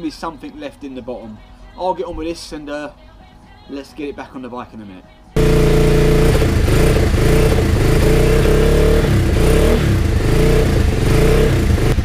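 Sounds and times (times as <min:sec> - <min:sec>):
motorcycle engine revving: 0:05.4 - 0:12.0.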